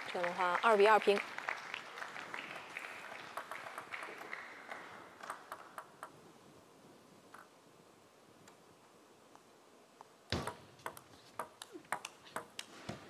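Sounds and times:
crowd applause: 0.0 - 5.2.

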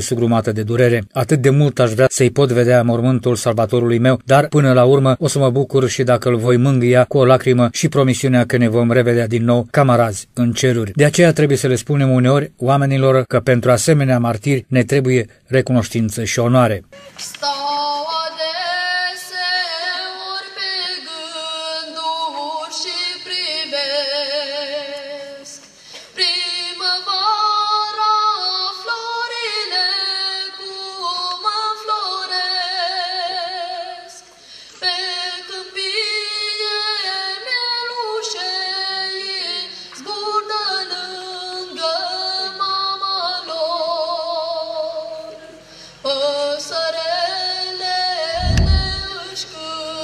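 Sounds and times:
boy singing into a microphone: 17.0 - 50.0.

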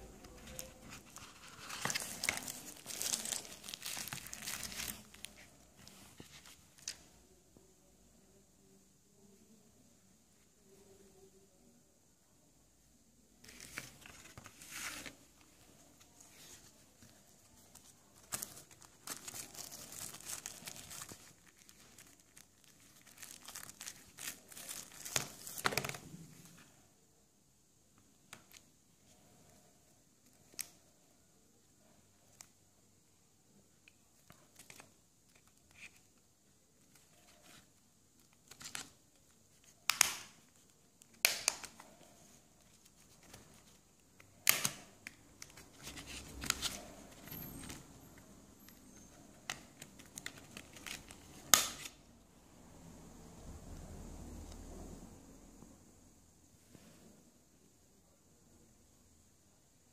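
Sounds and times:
plastic packaging crinkling: 0.2 - 6.9, 17.6 - 26.0.

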